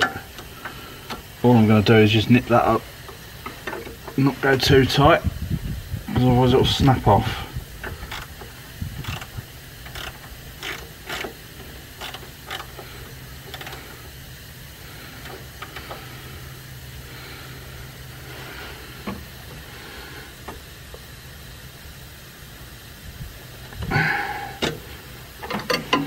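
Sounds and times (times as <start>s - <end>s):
ratchet clicking: 0.0s - 1.4s, 2.6s - 4.7s, 7.8s - 16.6s, 24.6s - 26.0s
steady low hum: 0.0s - 26.0s.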